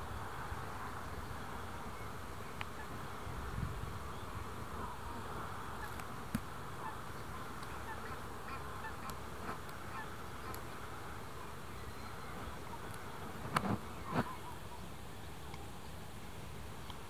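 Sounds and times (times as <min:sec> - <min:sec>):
faint bird calls: 0:00.8 - 0:03.1, 0:06.7 - 0:15.9.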